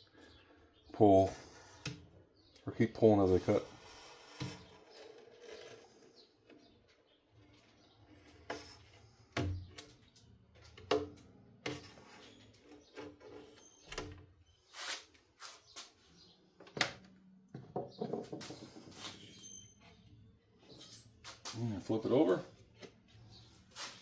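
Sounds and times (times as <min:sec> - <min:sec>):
clicks and scrapes on window glass: 0:03.2 - 0:15.9.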